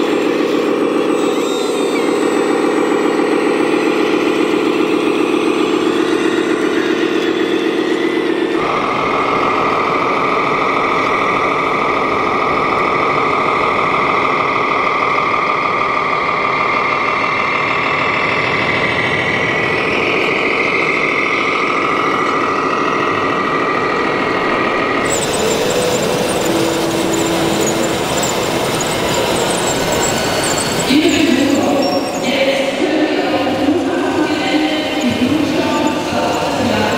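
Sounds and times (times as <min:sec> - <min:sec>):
busy hall background din: 0:00.0 - 0:36.9
toy truck motor whine: 0:19.8 - 0:32.2.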